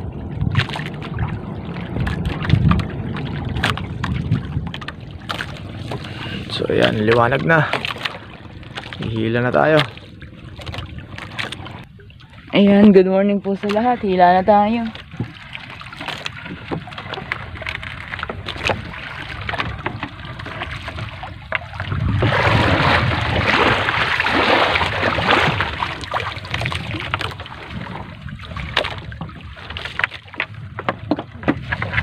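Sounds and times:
rush of water: 0.0 - 32.0
water splashing: 0.0 - 32.0
knocks against boat hull: 30.4 - 31.8.

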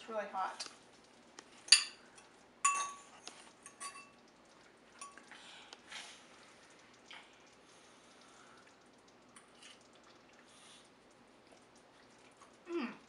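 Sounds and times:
fork clinking against ceramic bowl: 2.7 - 3.1, 3.7 - 4.1.

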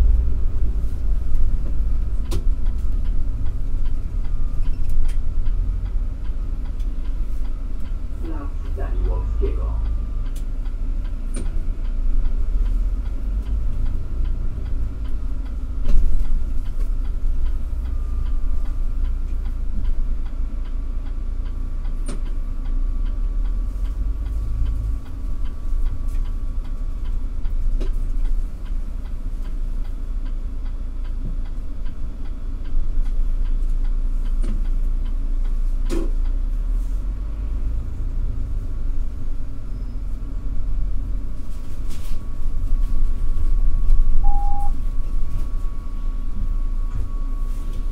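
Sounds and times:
faint steady whine: 0.0 - 35.4, 37.9 - 47.9
bus engine and tyres rumbling: 0.0 - 47.9
faint regular ticking: 1.4 - 36.4.

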